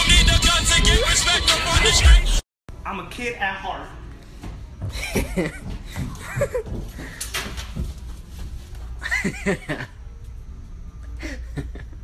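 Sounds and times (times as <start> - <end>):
steady low hum: 2.7 - 12.0.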